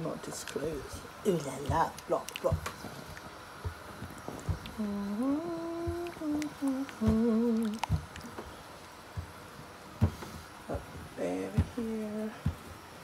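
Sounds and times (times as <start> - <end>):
person humming: 4.6 - 8.1, 10.7 - 12.5
soft knocks: 10.0 - 11.8.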